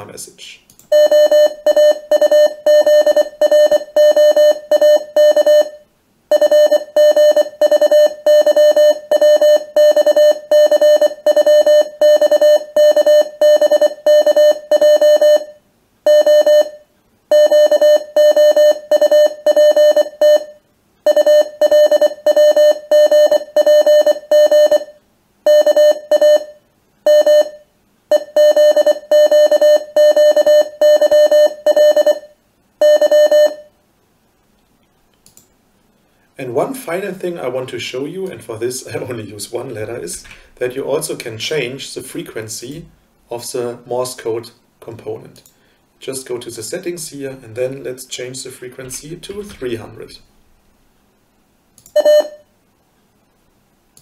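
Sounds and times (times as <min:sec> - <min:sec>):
morse code beeps: 0:00.9 - 0:33.7, 0:51.9 - 0:52.5.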